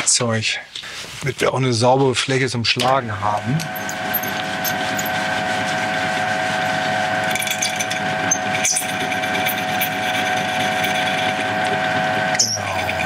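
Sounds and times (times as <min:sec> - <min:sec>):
lathe motor whine: 0:03.3 - 0:13.0.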